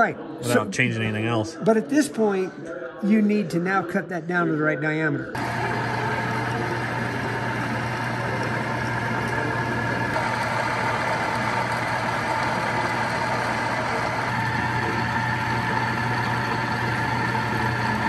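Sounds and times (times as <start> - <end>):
metal lathe running: 5.4 - 18.0.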